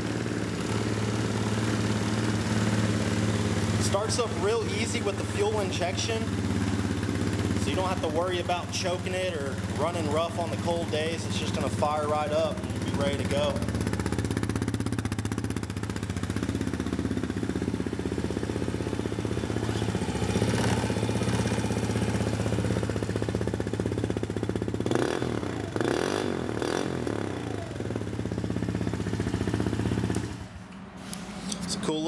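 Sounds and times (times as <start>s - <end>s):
quad bike engine idling: 0.0s - 30.6s.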